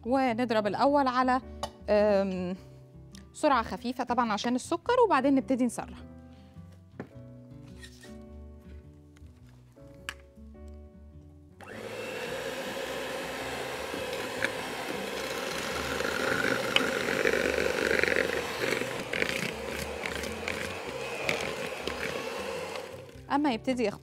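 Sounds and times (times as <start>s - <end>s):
electric mixer beating frosting: 11.6s - 23.3s.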